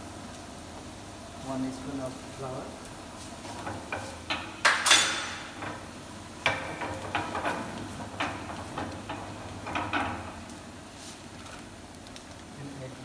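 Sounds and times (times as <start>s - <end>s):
utensils clinking against pan: 4.4s - 5.6s.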